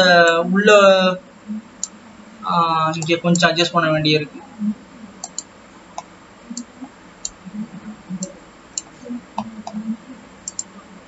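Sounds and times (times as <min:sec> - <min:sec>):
faint low sounds: 0:00.0 - 0:11.0
computer mouse clicking: 0:05.2 - 0:07.4, 0:10.4 - 0:10.7.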